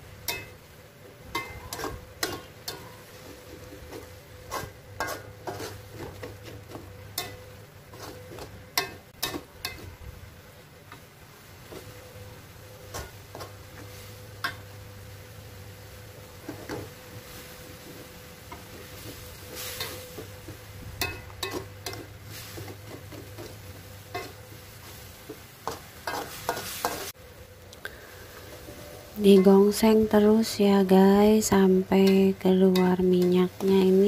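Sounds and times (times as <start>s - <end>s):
paste sizzling in oil: 0.0s - 27.2s
spatula scraping a wok: 1.2s - 10.0s, 11.6s - 15.1s, 15.8s - 27.2s.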